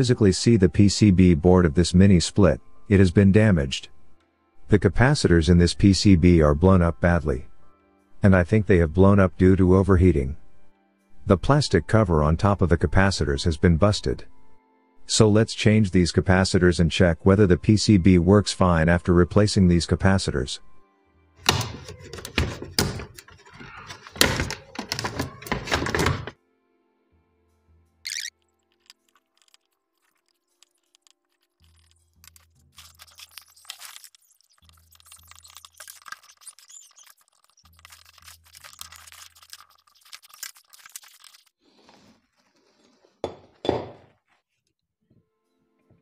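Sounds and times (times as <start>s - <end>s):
knocks and clunks of handled board: 21.4s - 26.3s
screwdriver metal clicks and scrapes: 28.1s - 41.6s.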